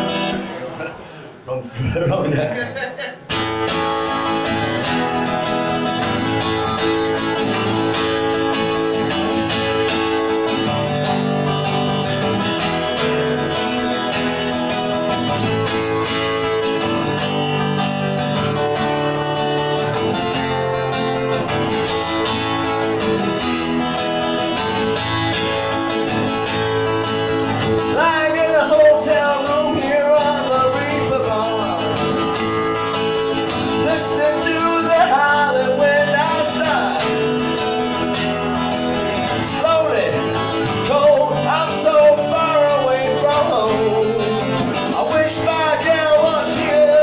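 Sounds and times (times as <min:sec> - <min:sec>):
acoustic guitar strumming: 0:00.0 - 0:01.2, 0:02.0 - 0:47.0.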